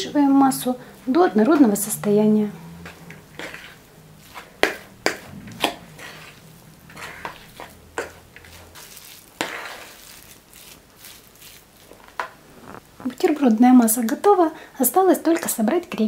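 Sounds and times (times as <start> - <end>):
fork mixing thick filling: 2.8 - 12.4.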